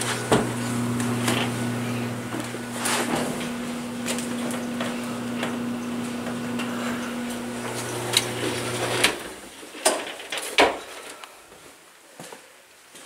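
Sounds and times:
electrical hum: 0:00.0 - 0:09.5.

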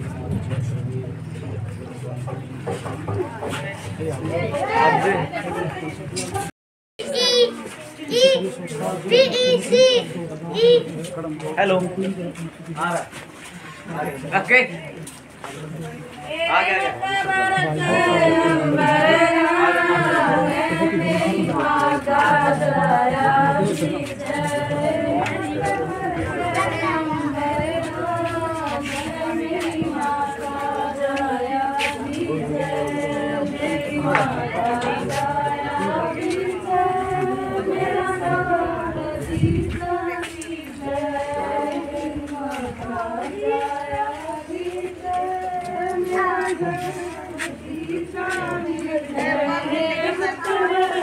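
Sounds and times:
person singing unaccompanied: 0:16.2 - 0:51.0.

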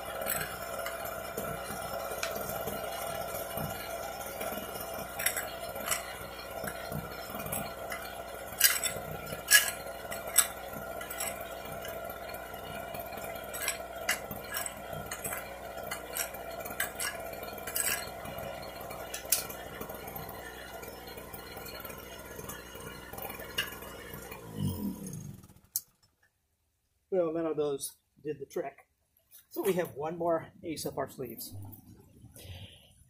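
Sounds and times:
grinder disc scraping concrete: 0:00.0 - 0:25.6
small engine humming: 0:00.0 - 0:26.1.

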